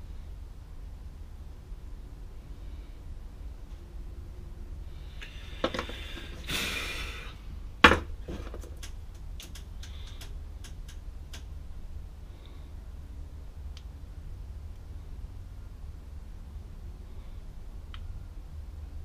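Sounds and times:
puff of breath: 5.1 - 7.4
light clicks: 8.8 - 11.5.

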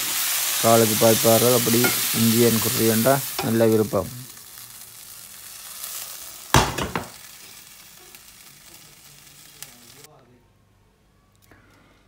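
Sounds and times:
vegetables sizzling in oil: 0.0 - 10.1.

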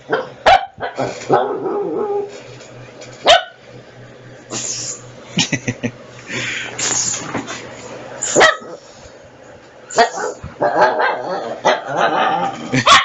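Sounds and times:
small dog barking: 0.1 - 2.3, 3.2 - 3.6, 8.3 - 8.8, 10.0 - 12.0.

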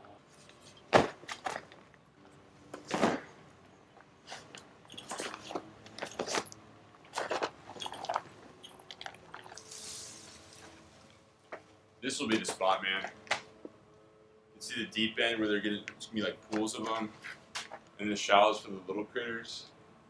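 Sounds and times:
footsteps crunching on leaves: 9.5 - 11.1.

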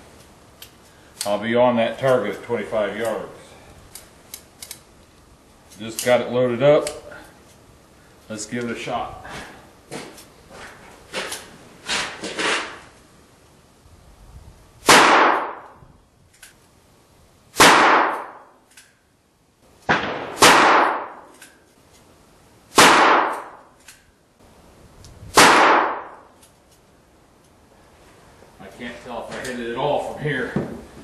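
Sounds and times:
gunshots with echoing tail: 14.8 - 15.8, 17.6 - 18.5, 19.9 - 21.3, 22.7 - 23.6, 25.4 - 26.3.

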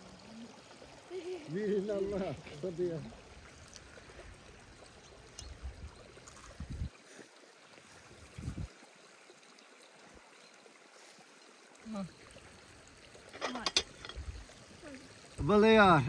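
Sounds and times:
stream running softly: 0.0 - 16.0.

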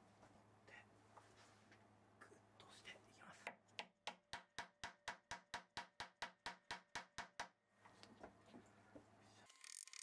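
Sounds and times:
hammer tapping on wood: 3.5 - 7.6.

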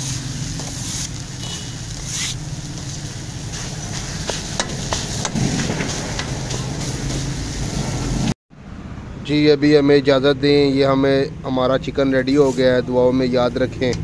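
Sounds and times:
metal scraper on griddle: 0.0 - 2.5
faint sizzle: 0.0 - 8.3.

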